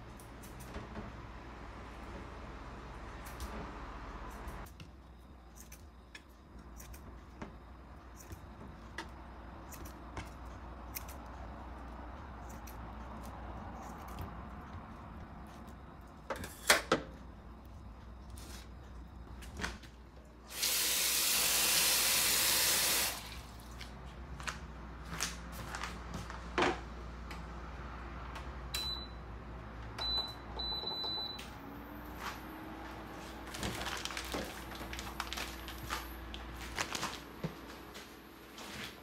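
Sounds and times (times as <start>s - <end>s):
appliance humming: 0.0s - 24.1s.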